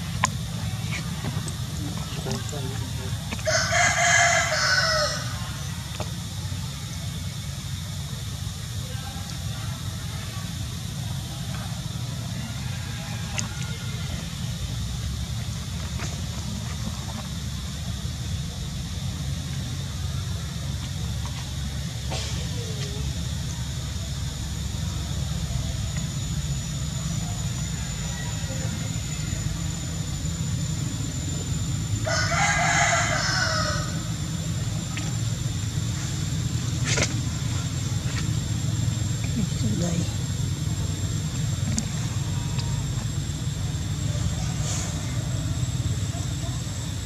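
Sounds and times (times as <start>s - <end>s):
low outdoor rumble: 0.0s - 47.0s.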